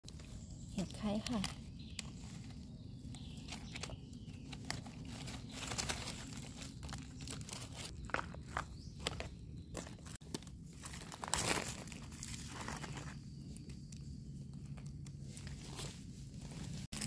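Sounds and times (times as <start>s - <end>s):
dry leaves rustling: 0.0s - 17.0s.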